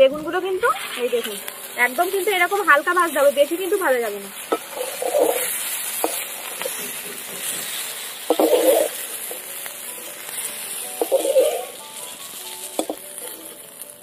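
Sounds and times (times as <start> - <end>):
eggplant sizzling in hot oil: 0.0 - 14.0
metal spatula scraping a pan: 4.4 - 9.5, 10.1 - 13.6.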